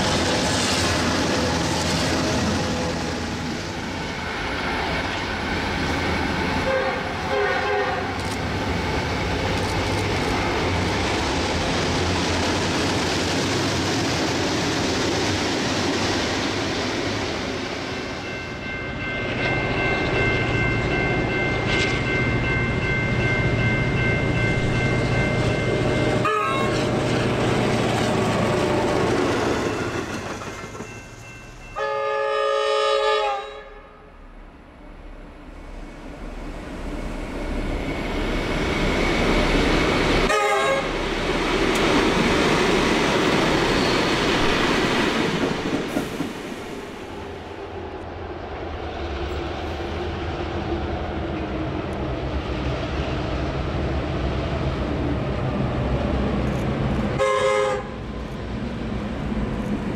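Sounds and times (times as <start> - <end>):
locomotive horn blast: 6.6 - 8.2, 26.2 - 27.0, 31.8 - 34.2, 40.3 - 41.0, 57.2 - 58.0
wheels rumbling over rails: 34.8 - 57.2.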